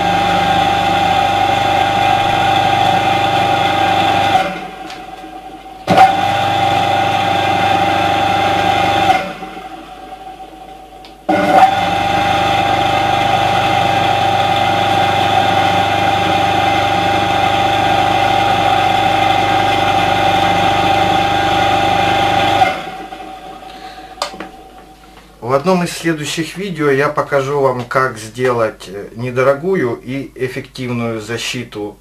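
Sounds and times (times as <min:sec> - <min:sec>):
electric motor humming and whining: 0:00.0 - 0:25.4
motor spinning down: 0:00.0 - 0:25.6
click: 0:10.7 - 0:11.2.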